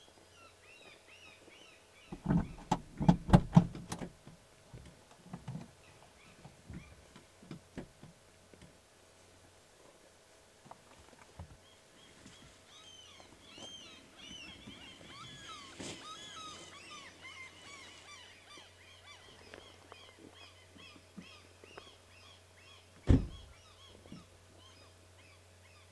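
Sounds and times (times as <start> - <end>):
small birds chirping: 11.3 - 25.9.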